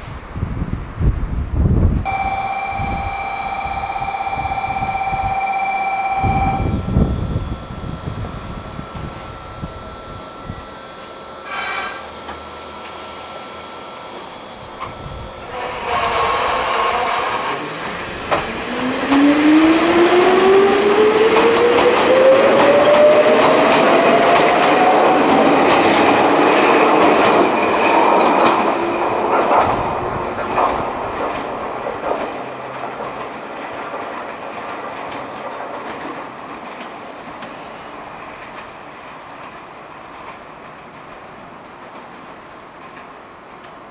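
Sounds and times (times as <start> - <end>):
electric train motor whine: 2.1 - 31.4
wheels clicking over rail joints: 21.2 - 43.9.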